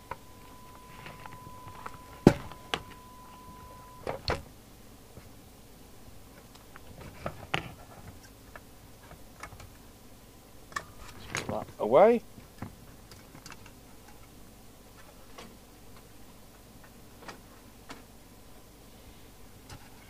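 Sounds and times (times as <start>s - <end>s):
faint steady high tone: 0.0s - 4.4s.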